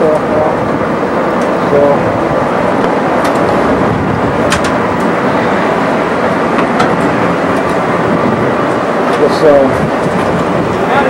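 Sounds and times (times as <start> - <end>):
loud rushing noise: 0.0 - 11.0
footsteps on steel grating stairs: 2.4 - 10.8.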